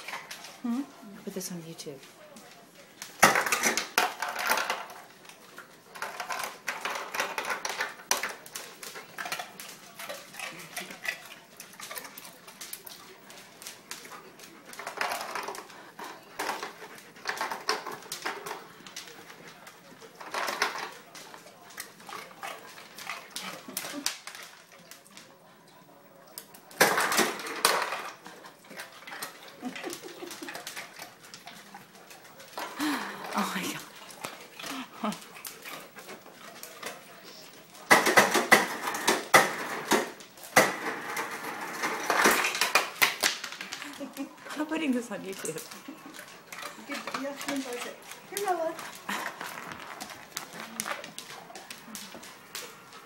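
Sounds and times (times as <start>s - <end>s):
dog crunching ice: 26.5s - 44.1s, 44.8s - 53.0s.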